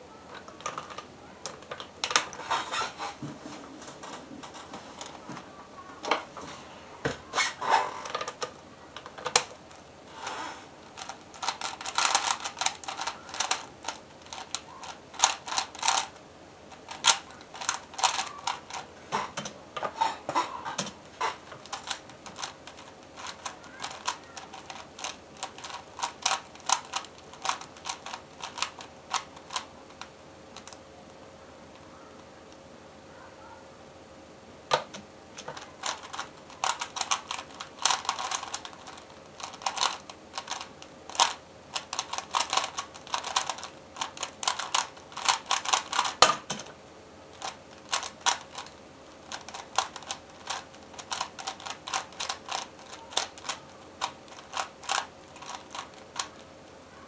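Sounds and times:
puzzle cube layers clicking: 0:11.0 - 0:16.1.

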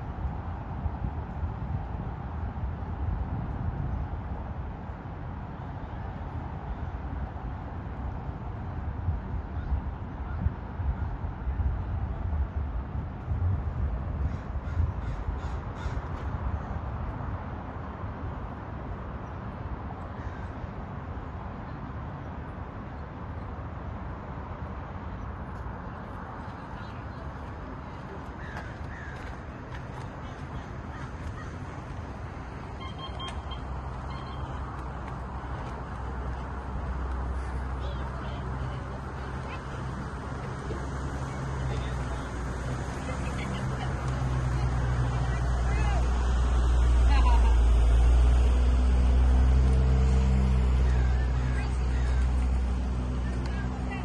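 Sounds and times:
bird calling: 0:32.8 - 0:34.6.

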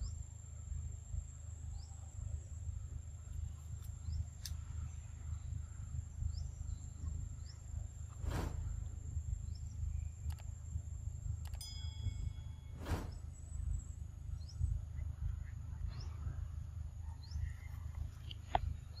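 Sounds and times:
low rumble: 0:00.0 - 0:19.0
brief chime: 0:11.5 - 0:13.3
rising bird-like chirps: 0:11.6 - 0:14.6.

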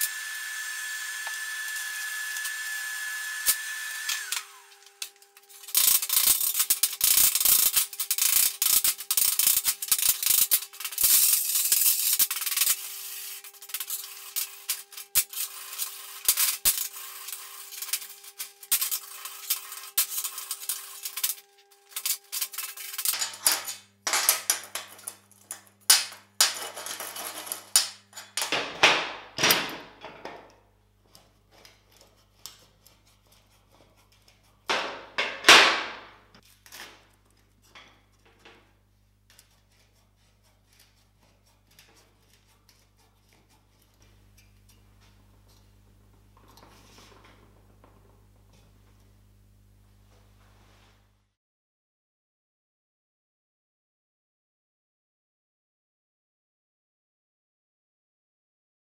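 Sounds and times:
wire brush scrubbing steel: 0:00.0 - 0:23.2, 0:31.2 - 0:34.8, 0:39.3 - 0:45.7
sweeping metal scrapes: 0:05.3 - 0:23.4.

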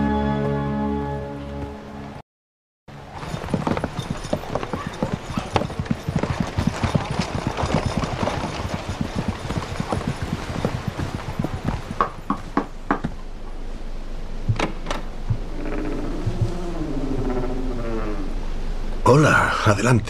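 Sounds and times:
horse hooves on dirt: 0:02.9 - 0:13.3, 0:14.5 - 0:17.5.

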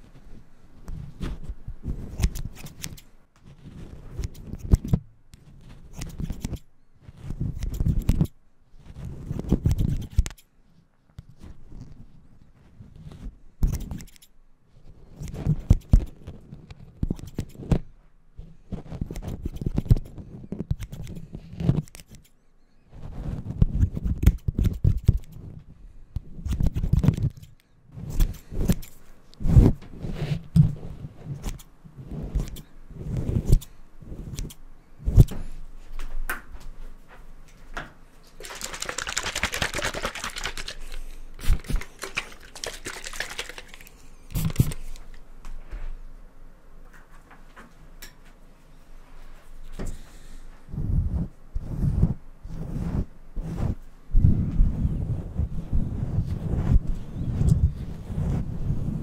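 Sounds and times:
scissors snipping and clicking: 0:02.1 - 0:03.1, 0:04.1 - 0:05.0, 0:05.9 - 0:06.6, 0:07.6 - 0:08.3, 0:09.5 - 0:10.5, 0:13.6 - 0:14.3, 0:17.0 - 0:17.8, 0:19.0 - 0:22.3, 0:24.0 - 0:25.4, 0:31.4 - 0:31.7, 0:34.3 - 0:34.6.

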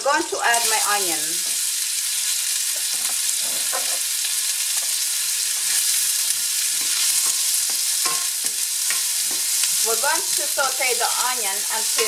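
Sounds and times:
onion sizzling in hot oil: 0:00.0 - 0:12.0
wooden spatula scraping a pan: 0:02.8 - 0:04.1.

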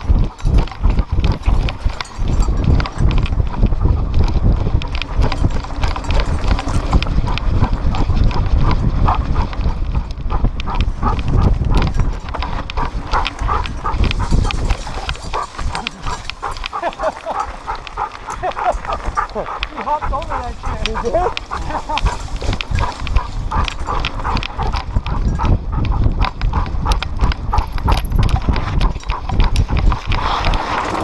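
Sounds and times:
harness mount rattling: 0:00.0 - 0:09.6, 0:10.6 - 0:25.5
low wind rumble: 0:00.0 - 0:31.0
dog panting: 0:00.1 - 0:31.0.

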